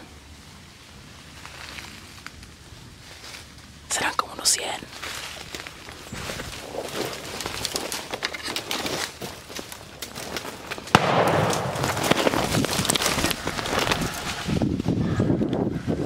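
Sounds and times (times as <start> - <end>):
loud rough rustling noise: 4.9 - 15.2
gunshot: 10.9 - 12.6.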